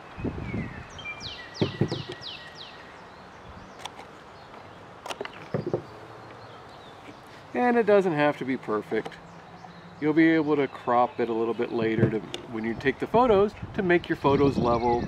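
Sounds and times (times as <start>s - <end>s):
handling knocks and clicks: 1.6s - 2.3s, 3.8s - 6.4s, 11.8s - 12.6s.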